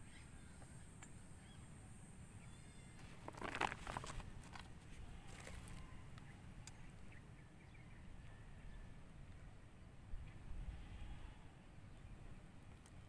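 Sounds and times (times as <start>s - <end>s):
hands rustling leafy plants: 3.0s - 5.8s.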